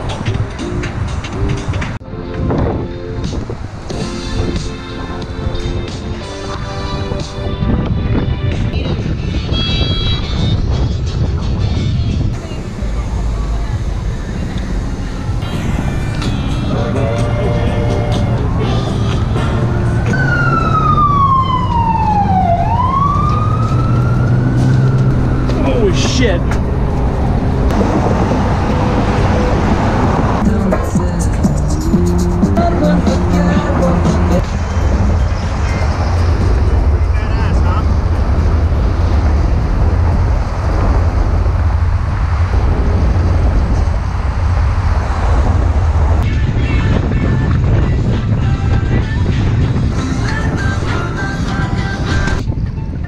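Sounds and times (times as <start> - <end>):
music: 0.0 - 20.4, 30.4 - 36.8, 46.2 - 53.0
traffic rumble: 0.0 - 53.0
wind on microphone: 0.0 - 53.0
emergency siren wailing: 12.4 - 30.6.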